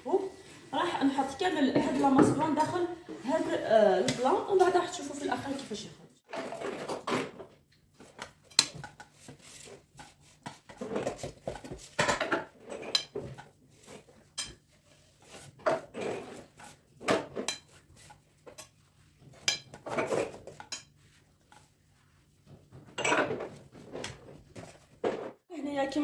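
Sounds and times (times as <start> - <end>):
metal spoon scraping glass bowl: 12.6 - 13.2.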